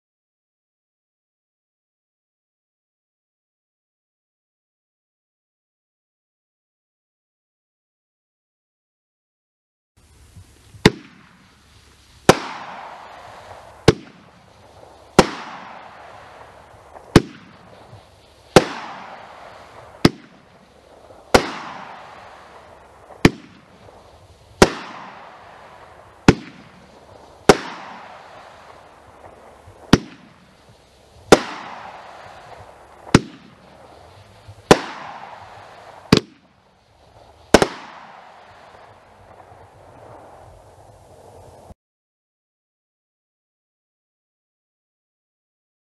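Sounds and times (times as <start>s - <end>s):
firework bursts with hiss: 10.0s - 41.8s
firework cake firing: 10.0s - 41.8s.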